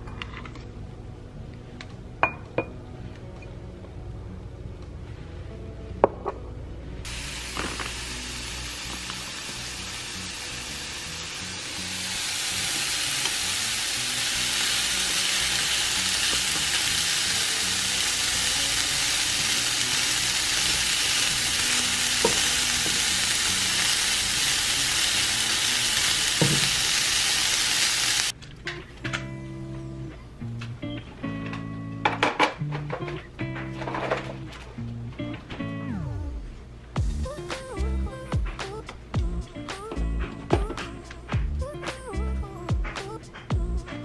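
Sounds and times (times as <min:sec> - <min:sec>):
chicken sizzling in a frying pan: 0:07.1 - 0:28.3.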